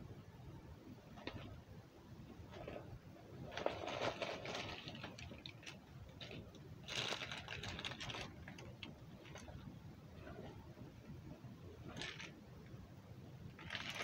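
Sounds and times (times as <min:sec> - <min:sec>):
handbag rustling and clattering: 0:03.5 - 0:09.6, 0:11.9 - 0:12.4.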